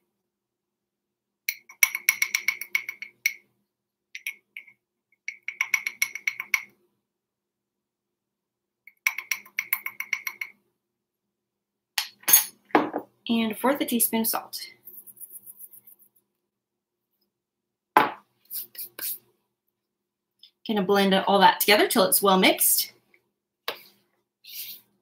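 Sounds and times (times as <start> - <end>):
metal spoon clinking on glass jar: 4.2 - 6.7.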